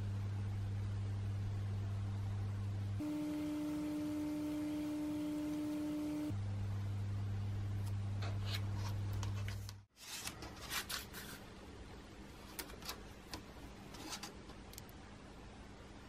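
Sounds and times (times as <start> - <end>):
low steady drone: 3.0 - 6.4.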